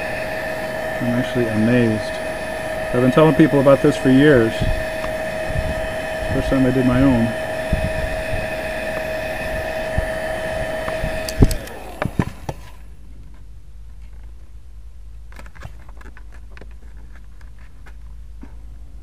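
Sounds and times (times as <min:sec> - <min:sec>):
heat gun whining and blowing: 0:00.0 - 0:12.9.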